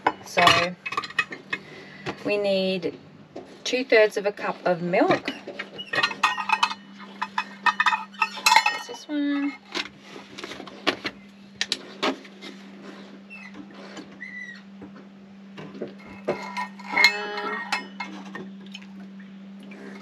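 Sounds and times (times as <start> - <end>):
steady low hum: 0.0 - 20.0
plastic cups clicking and clinking: 0.3 - 2.2, 5.1 - 10.5.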